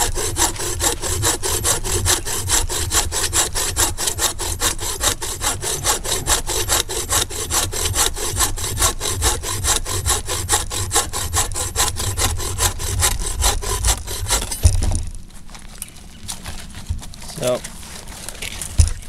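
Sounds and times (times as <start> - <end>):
bow saw cutting dry branch: 0.0 - 14.7.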